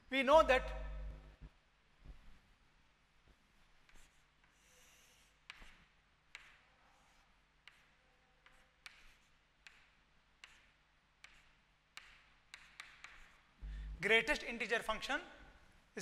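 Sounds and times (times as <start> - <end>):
chalk scratching on chalkboard: 3.8 - 13.5
chalk tapping on chalkboard: 3.8 - 13.6.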